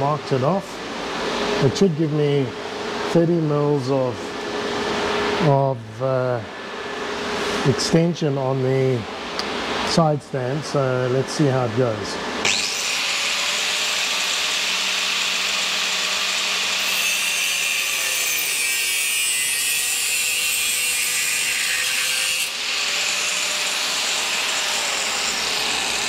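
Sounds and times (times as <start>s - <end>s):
angle grinder cutting steel tube: 12.4s - 26.0s.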